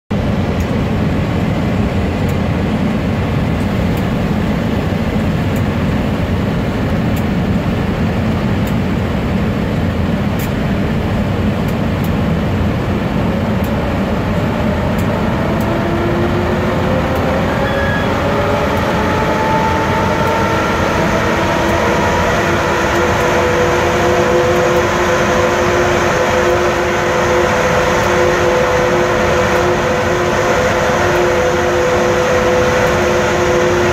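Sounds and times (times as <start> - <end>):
locomotive blower noise: 12.0 - 33.9
rising traction motor tones: 13.2 - 33.9.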